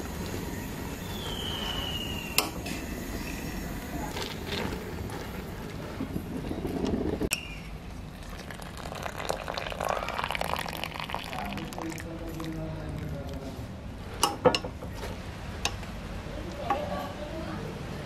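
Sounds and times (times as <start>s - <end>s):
steady background noise: 0.0s - 18.0s.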